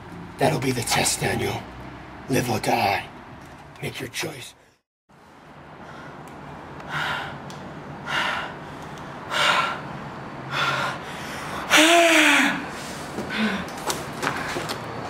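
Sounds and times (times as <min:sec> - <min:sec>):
man breathing heavily: 0:05.7 - 0:06.2, 0:06.8 - 0:14.7
man gasping: 0:10.5 - 0:13.7.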